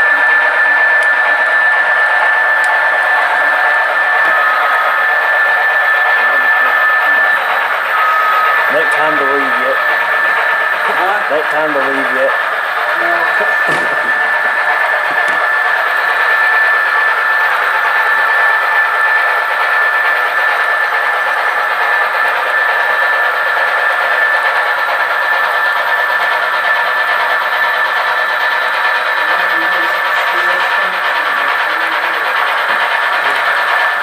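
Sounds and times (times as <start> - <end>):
model train running on track: 0.0 - 34.0.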